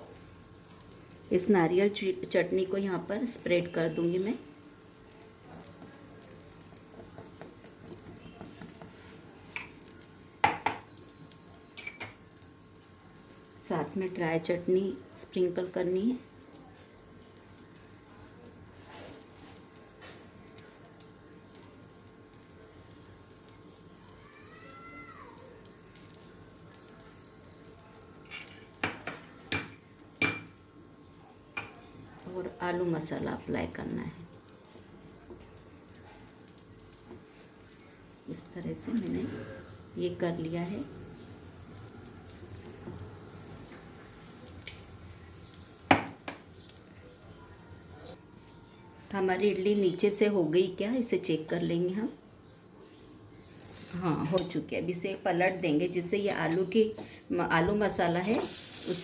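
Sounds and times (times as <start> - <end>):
metal spoon clinking and scraping: 11.7 - 12.2, 28.2 - 28.8, 49.6 - 51.7, 53.4 - 54.6
spoon clinking against pan: 11.7 - 12.2
metal spoon scraping a pan: 53.5 - 54.6.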